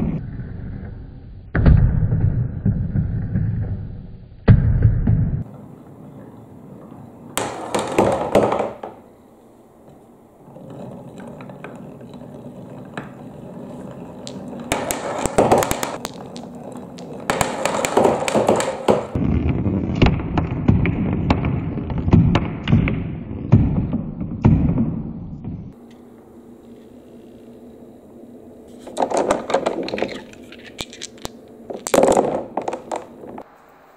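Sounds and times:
marbles rolling on wooden run: 6.6 - 9.0, 10.4 - 22.1, 28.7 - 33.5.

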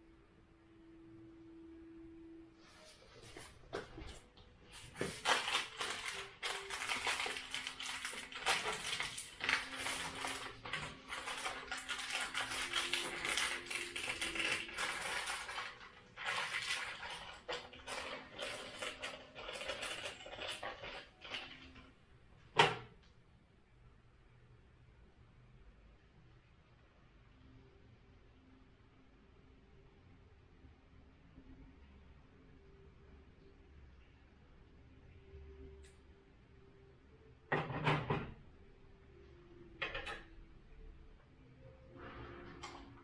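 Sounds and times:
plastic packaging crinkling: 4.8 - 21.9.

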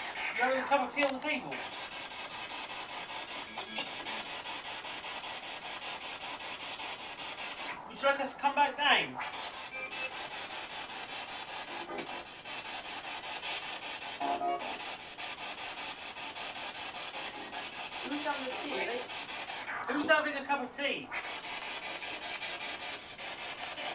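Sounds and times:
garbled radio sound: 0.3 - 1.7, 3.3 - 4.2, 7.8 - 10.4, 17.3 - 21.9
radio static hiss: 7.8 - 10.5, 17.3 - 23.9.

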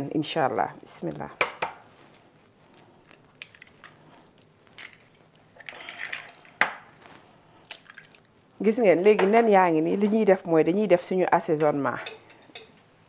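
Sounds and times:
egg cracking: 3.0 - 7.0, 7.7 - 8.3.

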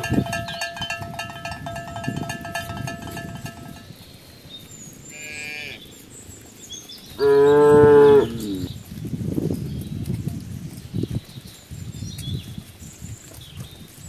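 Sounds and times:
cowbell ringing: 0.0 - 4.0
cattle mooing: 7.2 - 8.8.

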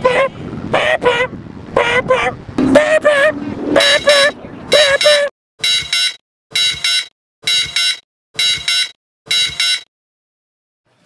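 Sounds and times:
phone ringtone double pulses: 5.0 - 9.9.

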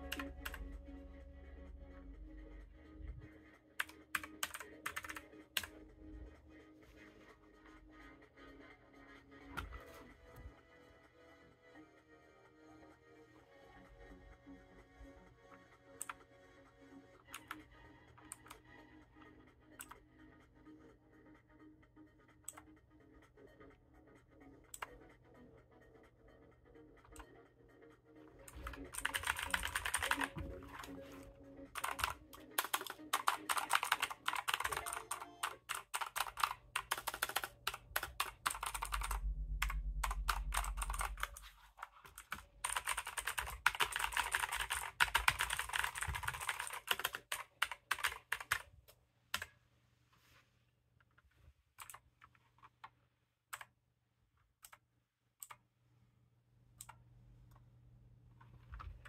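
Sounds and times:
mechanical keyboard typing: 0.0 - 0.6, 3.8 - 5.8, 28.5 - 31.1, 31.8 - 48.7
low rumble: 38.9 - 41.5.

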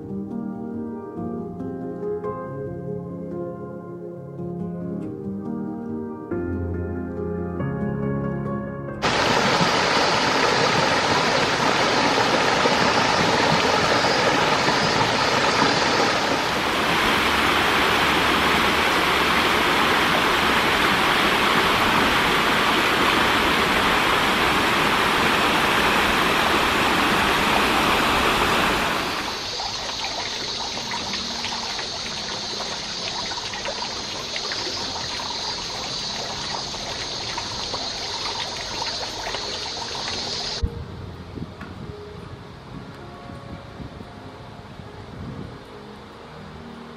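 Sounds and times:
small waterfall pouring: 9.0 - 40.6
stream flowing over rock: 9.0 - 40.6
water spouting from a pipe: 9.0 - 40.6.

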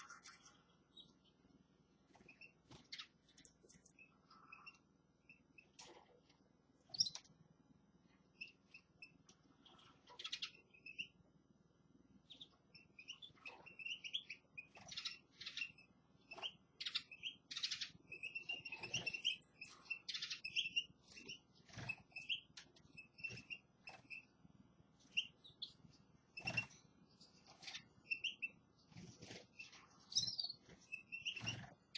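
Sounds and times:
finches twittering: 12.3 - 24.4, 25.1 - 31.9.

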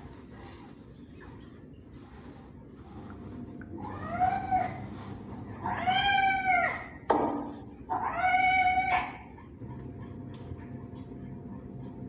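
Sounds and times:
cat meowing: 5.6 - 7.0, 7.9 - 9.2.

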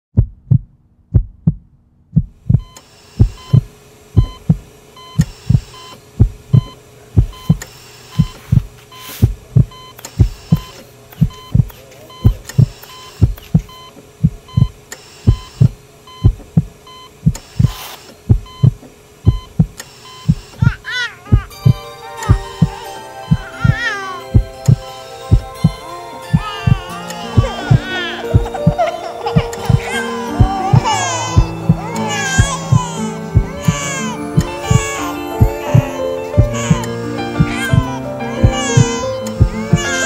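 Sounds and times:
heartbeat thumping: 0.2 - 36.8, 37.4 - 39.9
low hum: 18.2 - 39.8.

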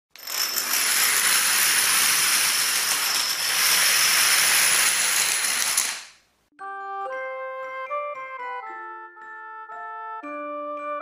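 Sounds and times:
dominoes toppling and clattering: 0.2 - 6.3.

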